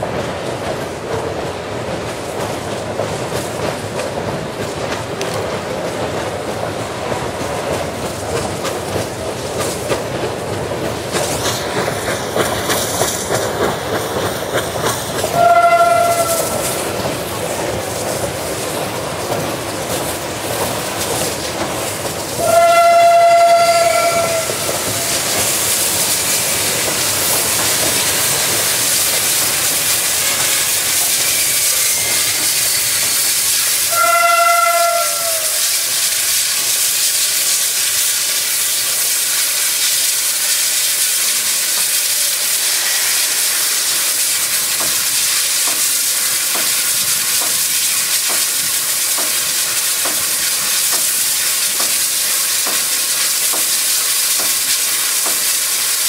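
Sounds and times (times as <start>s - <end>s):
steam hissing: 0.0s - 56.0s
train rumbling: 0.0s - 56.0s
steam whistle blasts: 15.3s - 16.8s, 22.4s - 25.2s, 31.1s - 35.9s, 42.7s - 43.9s.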